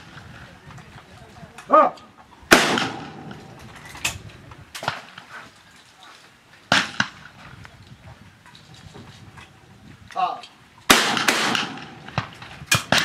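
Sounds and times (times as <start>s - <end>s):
faint gunshots: 2.5s - 3.5s, 10.9s - 13.0s
loud shotgun shot: 2.5s - 3.5s, 6.7s - 7.2s, 10.9s - 13.0s.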